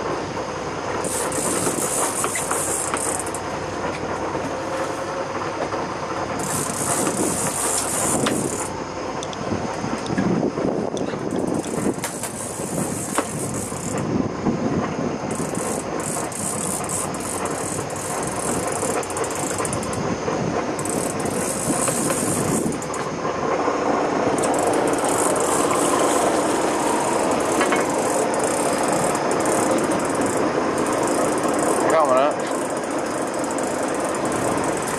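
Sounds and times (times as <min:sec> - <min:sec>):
boat engine running: 0:00.0 - 0:34.9
water rushing along hull: 0:00.0 - 0:34.9
high hiss: 0:01.0 - 0:03.4, 0:06.4 - 0:09.6, 0:20.7 - 0:34.9.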